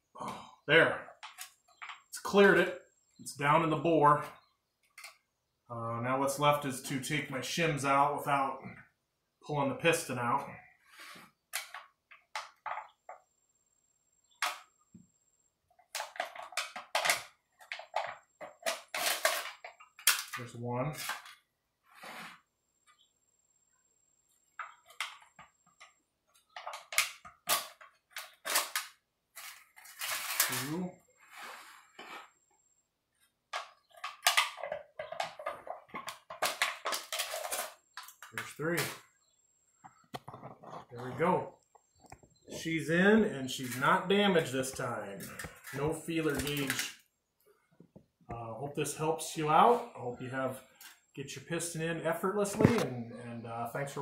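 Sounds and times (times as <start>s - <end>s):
aluminium shims scraping and crinkling: 15.8s - 22.5s, 24.5s - 32.5s, 33.5s - 38.6s, 39.9s - 42.7s, 43.5s - 47.0s.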